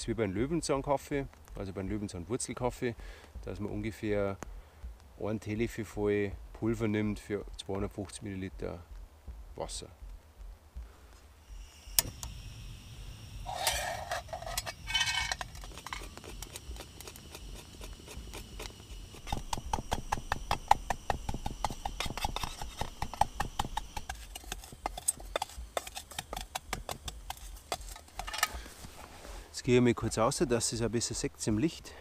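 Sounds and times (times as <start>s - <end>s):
gas burner hissing: 11.3s - 32.0s
gas stove ignition click: 12.0s - 12.4s
clinking and scraping in metal cookware: 13.5s - 16.2s, 27.3s - 28.6s
stick pounding nuts: 15.4s - 28.4s.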